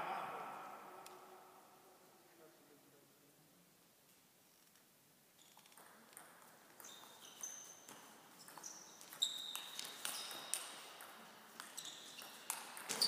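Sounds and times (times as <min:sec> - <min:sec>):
ping pong ball clicking: 0:05.7 - 0:07.0
short high squeaks: 0:08.4 - 0:10.5, 0:11.8 - 0:13.0.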